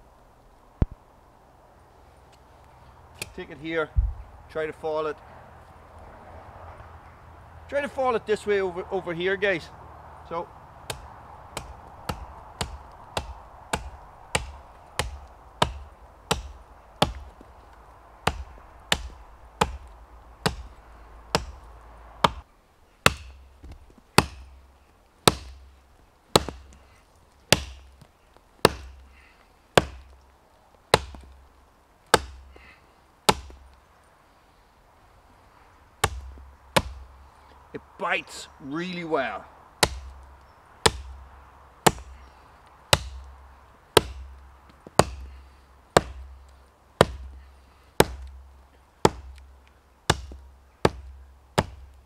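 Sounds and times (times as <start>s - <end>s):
axe chopping into tree: 3.2s - 4.2s, 10.9s - 17.5s, 18.2s - 24.6s, 25.2s - 25.7s, 26.3s - 26.8s, 27.5s - 29.1s, 29.8s - 30.2s, 30.9s - 31.4s, 32.1s - 32.7s, 33.3s - 33.7s, 36.0s - 37.2s, 39.8s - 41.2s, 41.8s - 42.2s, 42.9s - 48.4s, 49.0s - 49.5s, 50.1s - 52.0s.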